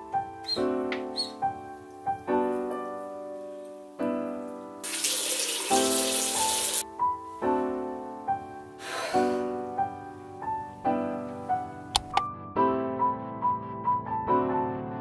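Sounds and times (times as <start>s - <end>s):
soft lofi piano music: 0.0s - 15.0s
water tap running: 4.8s - 6.8s.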